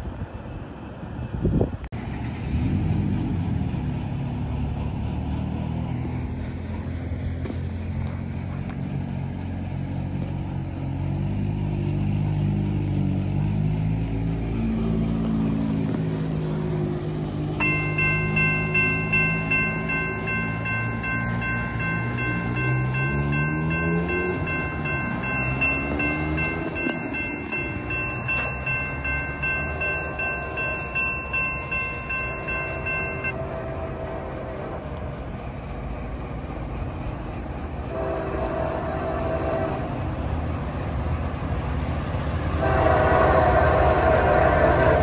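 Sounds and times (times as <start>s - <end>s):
locomotive engine: 0.0s - 45.0s
steady high ringing tone: 17.6s - 33.7s
locomotive horn blasts: 32.8s - 35.0s, 37.9s - 40.0s, 42.6s - 45.0s.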